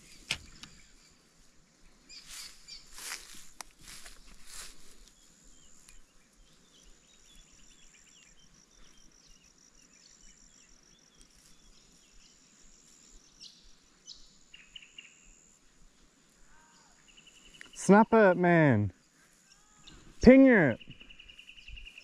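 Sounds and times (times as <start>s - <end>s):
insects trilling: 2.1s - 22.0s
bird chirps: 19.4s - 22.0s.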